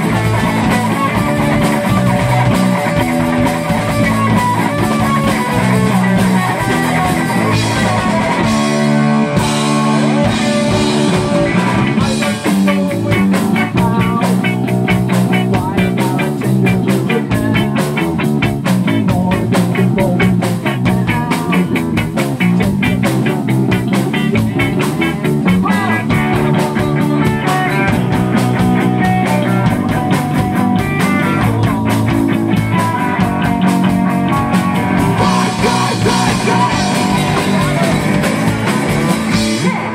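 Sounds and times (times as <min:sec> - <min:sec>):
drums: 0:00.0 - 0:39.9
electric guitar: 0:00.0 - 0:39.9
live rock band playing: 0:00.0 - 0:39.9.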